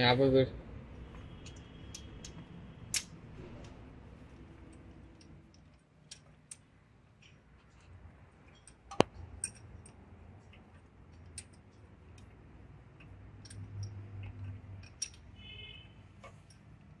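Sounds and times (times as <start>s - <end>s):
metallic clicks and taps: 4.7s - 7.8s, 8.4s - 15.3s.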